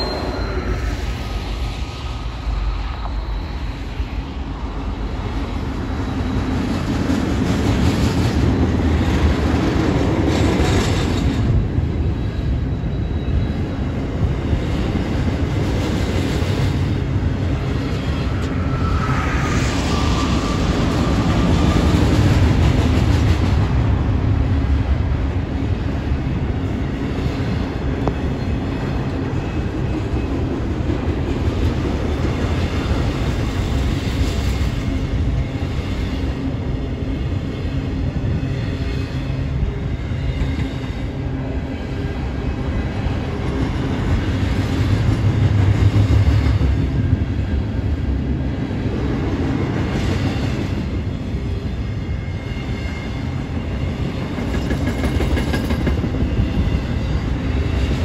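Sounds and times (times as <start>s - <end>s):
high wheel squeal: 0.0s - 1.4s, 2.7s - 4.3s, 17.8s - 22.3s
freight train rumbling past: 0.0s - 58.0s
wheels clattering on rail: 54.2s - 58.0s.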